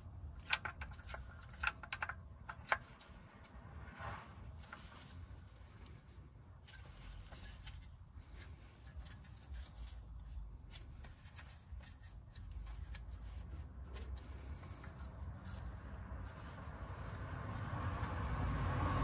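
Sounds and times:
small metal clicks: 0:00.2 - 0:03.6
gloved hand rustling: 0:04.6 - 0:18.5.

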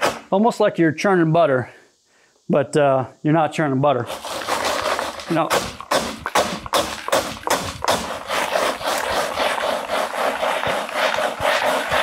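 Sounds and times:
rocks clattering in plastic bucket: 0:04.1 - 0:12.0.

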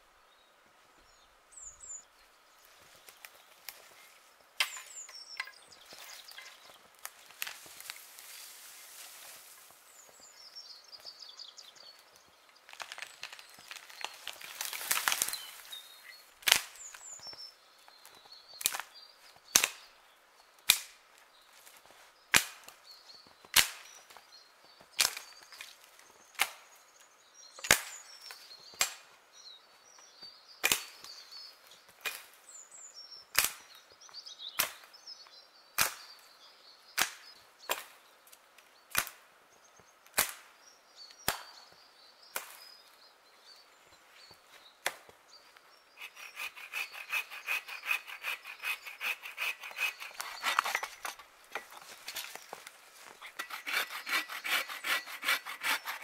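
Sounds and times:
hand-saw strokes: 0:46.0 - 0:51.7, 0:53.2 - 0:56.0.

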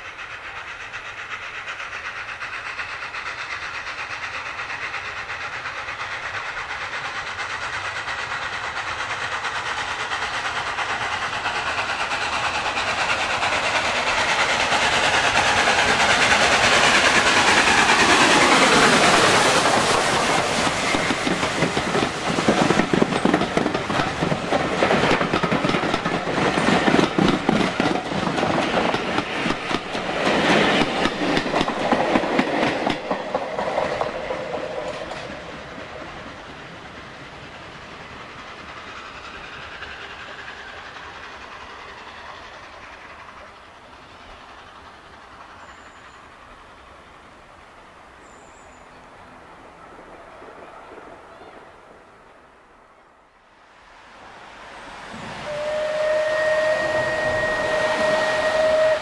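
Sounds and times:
train passing: 0:00.0 - 0:59.0
wheels clicking over rail joints: 0:05.4 - 0:36.5.

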